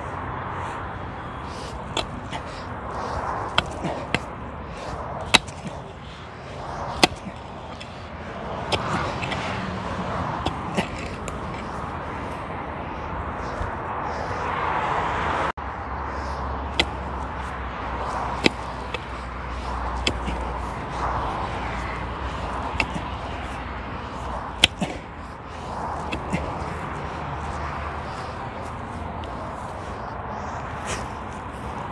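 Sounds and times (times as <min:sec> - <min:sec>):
road traffic noise: 0:00.0 - 0:31.9
pickaxe striking stony soil: 0:03.5 - 0:04.3, 0:05.3 - 0:05.8, 0:06.9 - 0:07.9, 0:08.7 - 0:09.4, 0:16.7 - 0:17.0, 0:18.3 - 0:19.1, 0:20.0 - 0:20.4, 0:24.6 - 0:25.0.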